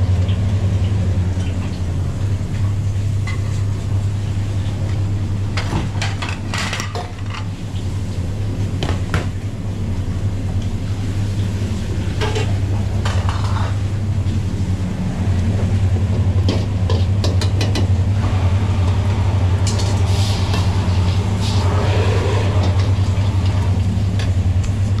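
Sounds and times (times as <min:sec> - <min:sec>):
kitchen equipment humming: 0:09.6 - 0:25.0.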